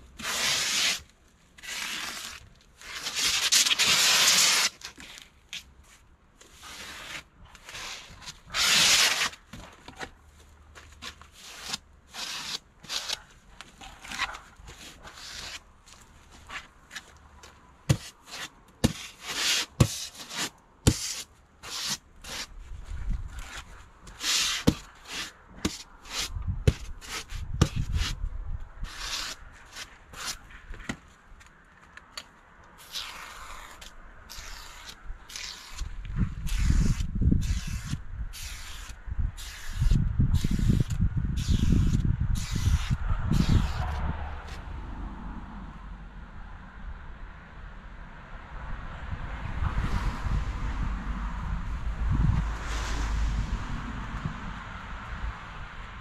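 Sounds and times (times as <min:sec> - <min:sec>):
polystyrene board scraping: 0:00.0 - 0:10.2, 0:10.8 - 0:17.2, 0:17.9 - 0:28.2, 0:28.8 - 0:31.1, 0:32.8 - 0:44.6.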